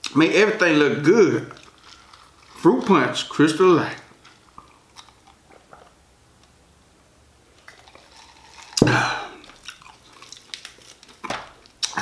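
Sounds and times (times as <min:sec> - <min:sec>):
sudden loud sound: 0:08.8 - 0:09.4
person swallowing: 0:08.8 - 0:09.6.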